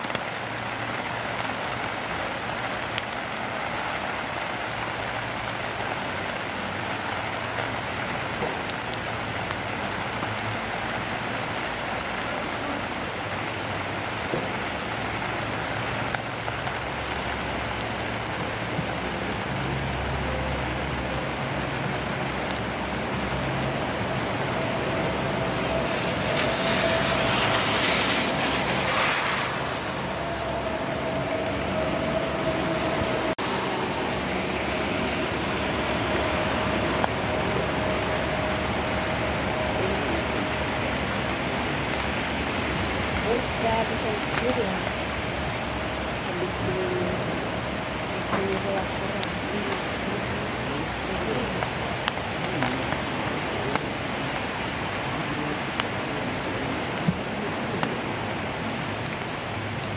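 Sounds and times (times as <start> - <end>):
raindrop ticks: 0.0 - 33.5, 34.6 - 59.9
rain on grass and leaves: 0.0 - 59.9
low rumble: 20.4 - 43.2.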